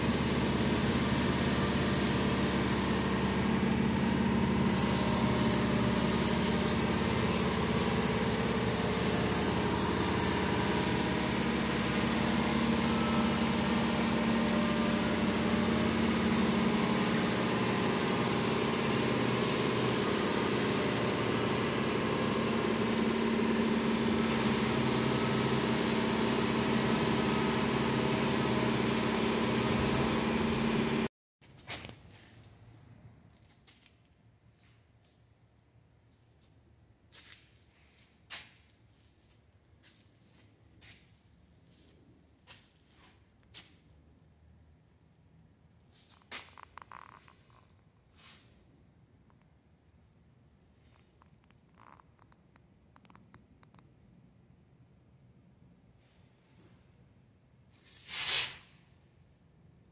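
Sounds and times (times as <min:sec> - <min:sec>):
machine humming: 0:00.0 - 0:31.1
even hiss: 0:57.8 - 0:58.8.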